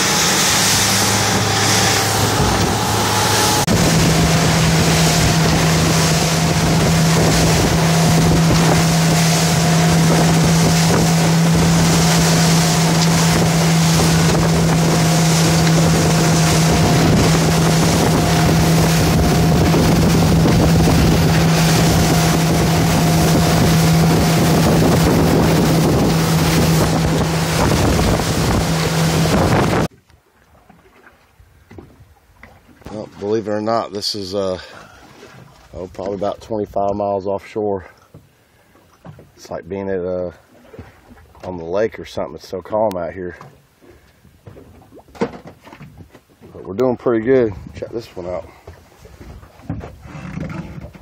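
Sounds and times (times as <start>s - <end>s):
water and spray rushing off hull: 0.0s - 29.9s
wind buffeting microphone: 0.0s - 29.9s, 47.4s - 48.4s
motorboat engine drone: 0.0s - 37.0s.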